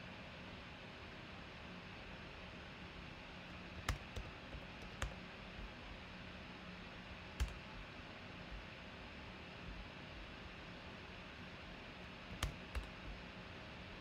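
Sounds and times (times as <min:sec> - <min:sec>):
faint steady hiss: 0:00.0 - 0:14.0
computer mouse and keyboard clicks: 0:03.7 - 0:05.8, 0:07.4 - 0:07.9, 0:12.3 - 0:13.2.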